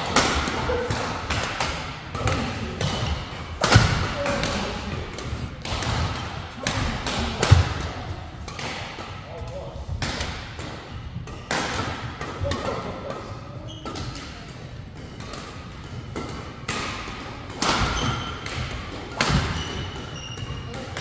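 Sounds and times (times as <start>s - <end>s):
racket striking shuttlecock: 0.0s - 9.2s, 10.0s - 12.8s, 13.8s - 21.0s
shoe squeaks: 13.6s - 14.0s, 19.5s - 20.8s.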